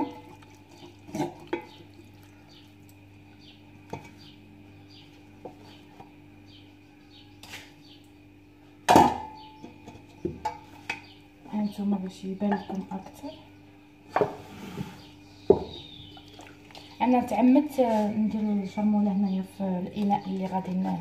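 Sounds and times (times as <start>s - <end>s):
knocks against metal pot: 8.9s - 11.1s.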